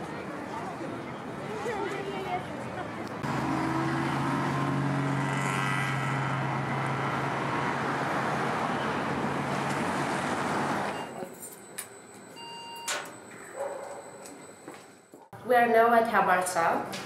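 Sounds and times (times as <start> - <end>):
road and traffic noise: 0.0 - 15.4
vehicle engine hum: 1.1 - 11.2.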